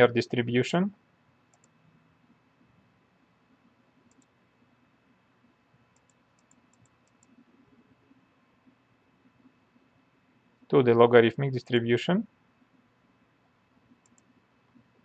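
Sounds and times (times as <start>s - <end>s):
faint computer mouse clicks: 1.5s - 1.8s, 4.0s - 4.4s, 5.9s - 7.4s, 14.0s - 14.3s.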